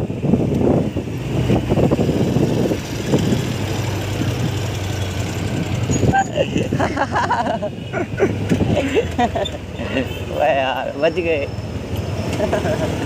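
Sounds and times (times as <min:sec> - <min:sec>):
wind on microphone: 0:00.0 - 0:04.7
scooter engine humming: 0:00.2 - 0:10.3.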